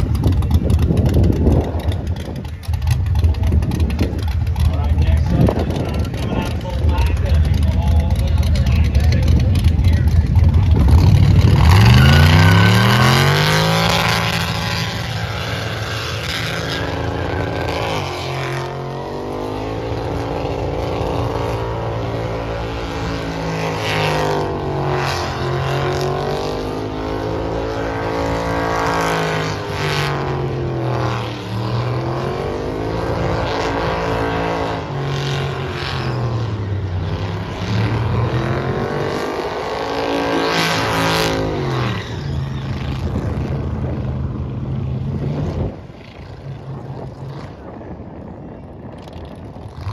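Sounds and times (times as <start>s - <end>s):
truck engine revving high: 0.0s - 47.7s.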